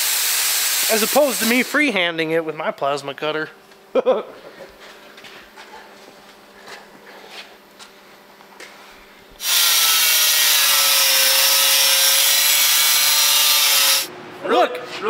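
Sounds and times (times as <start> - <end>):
angle grinder grinding steel: 9.4 - 14.1.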